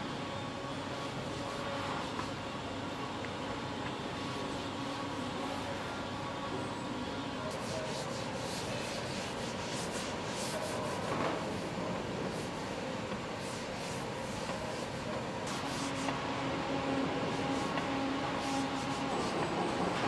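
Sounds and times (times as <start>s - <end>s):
steady workshop hum: 0.0s - 20.0s.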